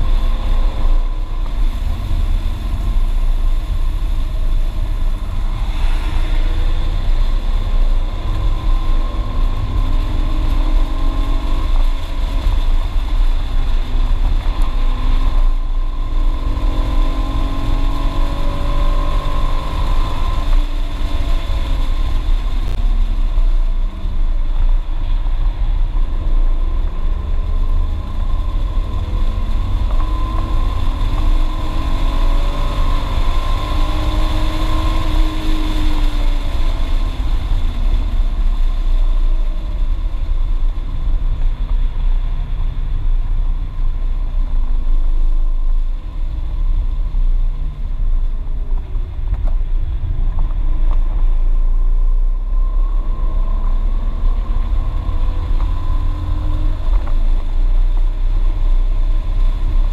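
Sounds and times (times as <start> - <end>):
car engine revving: 0.0 - 22.8, 26.6 - 38.8
road and wind rumble: 0.0 - 59.9.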